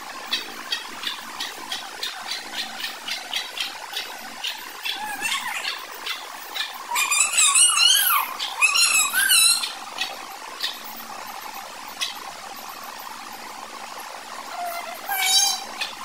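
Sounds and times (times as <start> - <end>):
wavering chicken calls: 0.0 - 16.0
chicks cheeping: 0.3 - 10.9.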